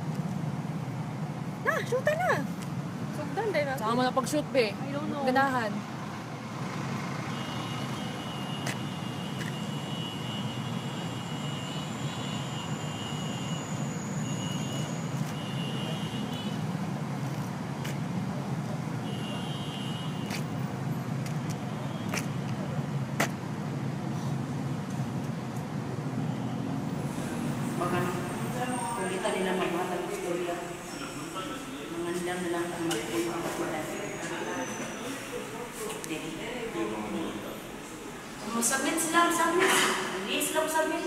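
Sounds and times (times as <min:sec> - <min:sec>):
low rumble of vehicles: 0:00.0 - 0:41.0
thin high whine: 0:27.2 - 0:32.1.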